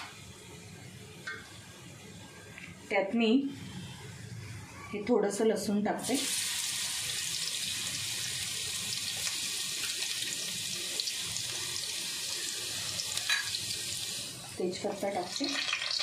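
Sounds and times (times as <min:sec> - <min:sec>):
garlic sizzling in hot oil: 0:06.0 - 0:16.0.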